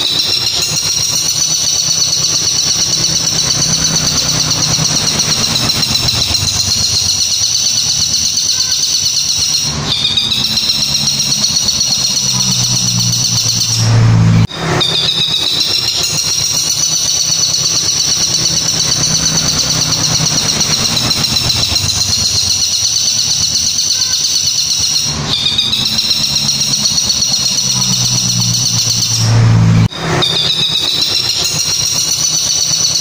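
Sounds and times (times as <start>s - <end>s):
bird high-pitched trill: 0.0s - 33.0s.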